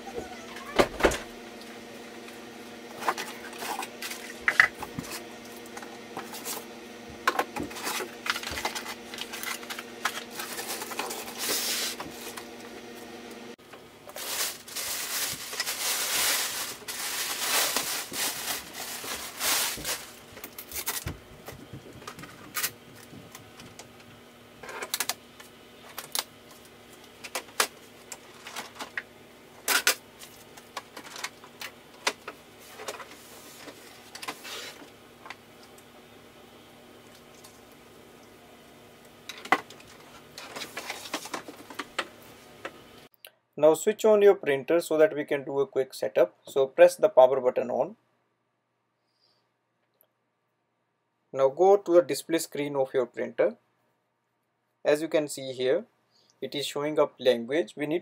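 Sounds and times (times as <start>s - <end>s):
plastic bag rustling: 7.6s - 12.6s, 13.8s - 23.9s, 39.3s - 42.6s.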